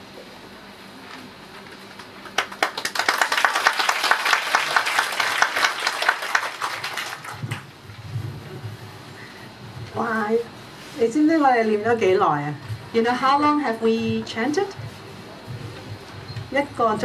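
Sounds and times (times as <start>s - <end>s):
audience applauding: 1.9s - 7.8s.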